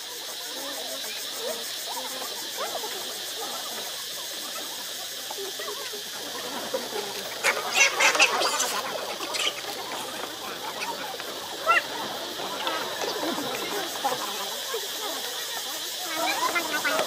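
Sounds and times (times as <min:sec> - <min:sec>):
chirping animal calls: 0:00.0 - 0:17.0
high insect hiss: 0:00.0 - 0:17.0.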